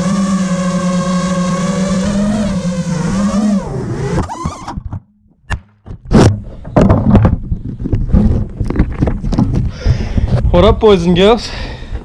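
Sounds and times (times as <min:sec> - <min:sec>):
pitch-bending tone: 0:00.0 - 0:04.9.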